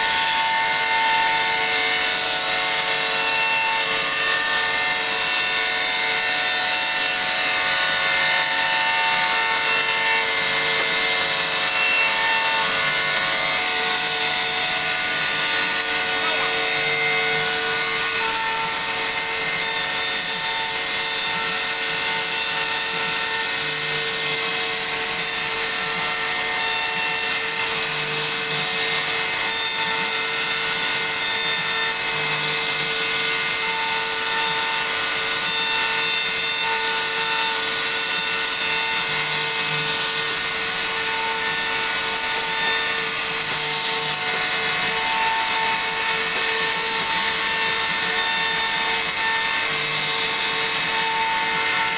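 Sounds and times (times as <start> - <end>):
router spindle whine: 0.0 - 51.9.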